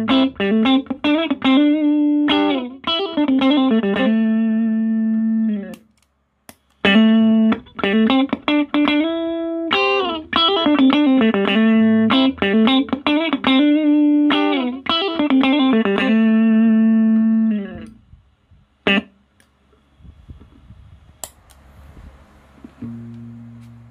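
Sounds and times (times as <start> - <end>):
electric guitar lick with bent notes: 0.0 - 5.9, 6.8 - 18.0, 18.8 - 19.2, 22.6 - 23.9
faint amp hiss: 15.8 - 23.9.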